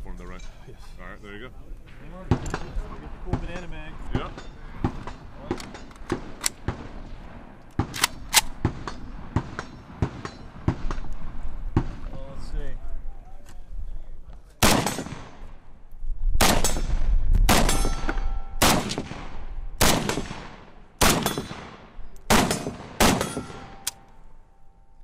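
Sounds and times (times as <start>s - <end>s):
pistol shots with echo: 2.3s - 11.0s, 14.6s - 15.5s, 16.4s - 24.0s.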